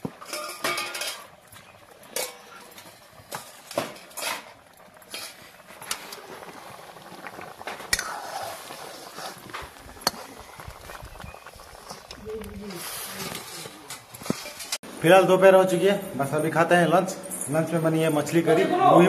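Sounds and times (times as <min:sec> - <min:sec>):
metal utensils clinking: 0:00.1 - 0:06.3.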